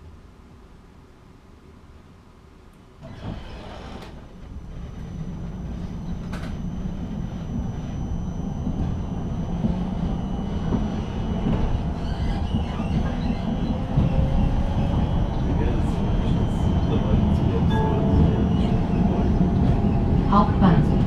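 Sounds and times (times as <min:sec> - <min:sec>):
steady high whine: 0:02.5 - 0:21.0
tram running noise: 0:03.0 - 0:21.0
rising motor whine: 0:04.5 - 0:20.3.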